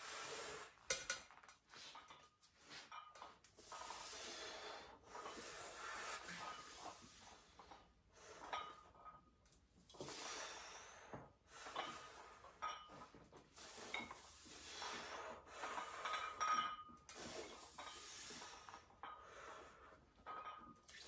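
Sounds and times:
person breathing hard: 0:03.8 - 0:06.5
metallic clinks of weight plates: 0:15.7 - 0:17.0.

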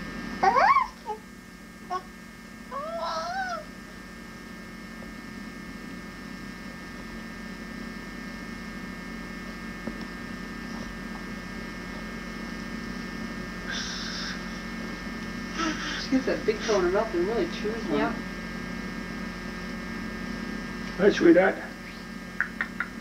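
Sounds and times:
electrical hum: 0:00.0 - 0:23.0
breathy hiss: 0:13.6 - 0:14.6, 0:15.5 - 0:17.0.

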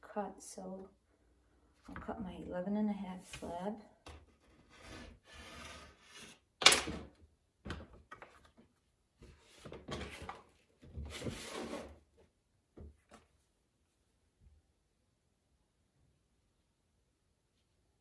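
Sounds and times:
clay scraping and sliding: 0:03.3 - 0:06.5.

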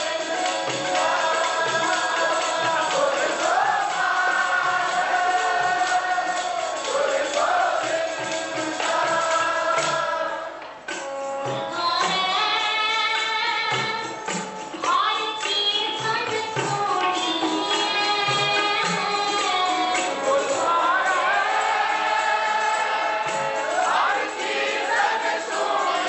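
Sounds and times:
woman singing a hymn: 0:00.0 - 0:06.6, 0:11.6 - 0:14.1, 0:14.8 - 0:21.3
harmonium: 0:00.0 - 0:26.0.

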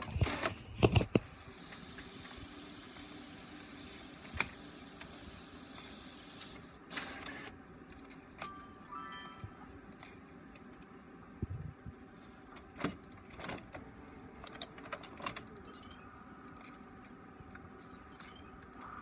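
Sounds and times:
inkjet printer whirring and clicking: 0:00.0 - 0:08.1.

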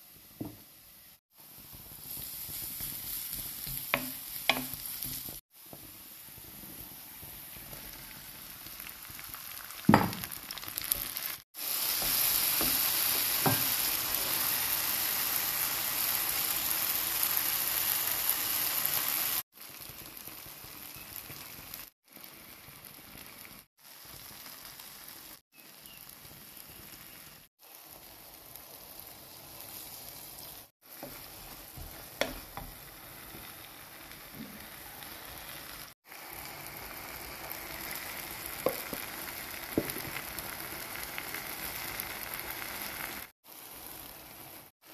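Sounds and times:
vegetables sizzling in frying pan: 0:00.0 - 0:44.9
spoon knocking against pan: 0:03.7 - 0:05.2, 0:31.8 - 0:32.8
wooden spoon stirring: 0:30.9 - 0:32.8.

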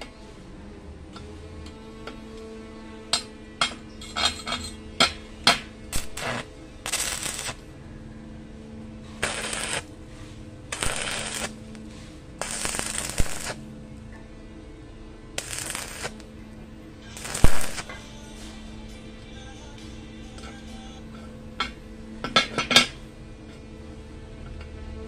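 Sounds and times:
electrode striking snaps: 0:05.9 - 0:07.6, 0:09.2 - 0:09.9, 0:10.7 - 0:11.6, 0:12.4 - 0:13.6, 0:15.4 - 0:16.3, 0:17.2 - 0:17.9
welding arc crackling: 0:05.9 - 0:07.6, 0:09.2 - 0:09.9, 0:10.7 - 0:13.6, 0:15.4 - 0:16.3, 0:17.1 - 0:18.0.

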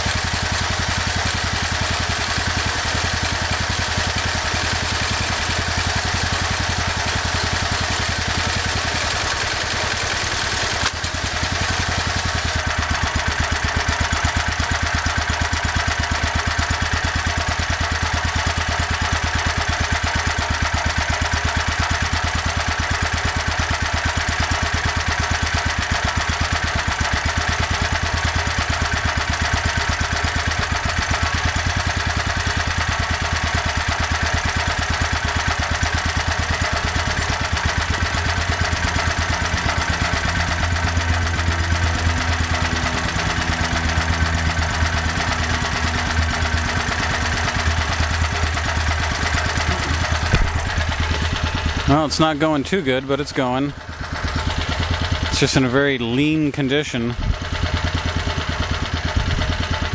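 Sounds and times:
small generator engine running: 0:00.0 - 0:59.9.

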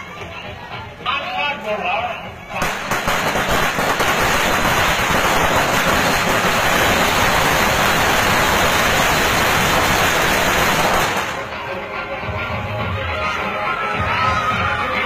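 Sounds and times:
firecrackers crackling: 0:02.5 - 0:11.8.

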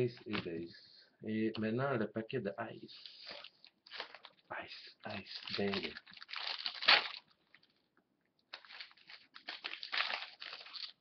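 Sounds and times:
plastic wrapper crinkling and tearing: 0:02.9 - 0:04.4, 0:05.0 - 0:07.9, 0:08.5 - 0:11.0.

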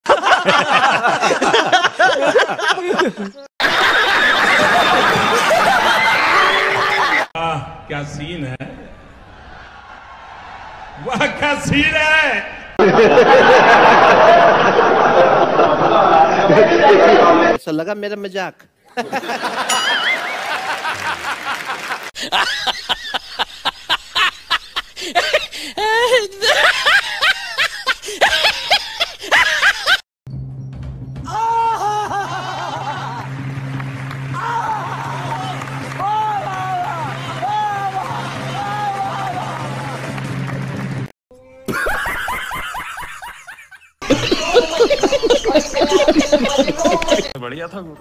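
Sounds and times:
audience laughing: 0:00.0 - 0:07.3, 0:12.8 - 0:17.6, 0:18.9 - 0:30.0, 0:31.6 - 0:33.5, 0:41.7 - 0:47.4
man laughing loudly: 0:00.0 - 0:07.3, 0:12.8 - 0:16.3, 0:19.0 - 0:30.0, 0:31.4 - 0:33.2, 0:41.7 - 0:47.4
audience clapping: 0:03.6 - 0:07.3, 0:19.6 - 0:23.3, 0:32.6 - 0:41.1, 0:44.1 - 0:47.4.

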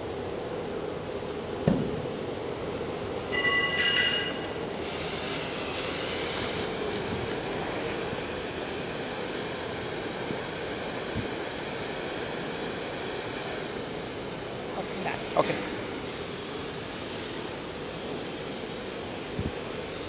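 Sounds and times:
cutting torch flame hissing: 0:04.7 - 0:20.0.

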